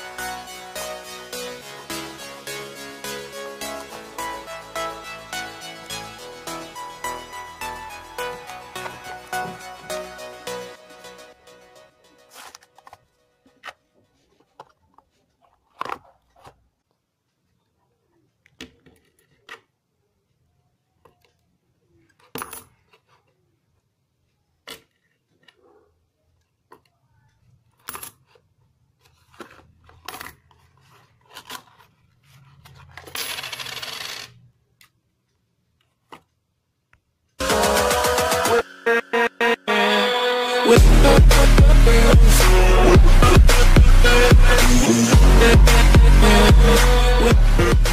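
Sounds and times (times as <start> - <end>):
coins clattering onto table: 22.3 - 22.8, 33.0 - 34.4
coins clinking into box: 32.9 - 34.4.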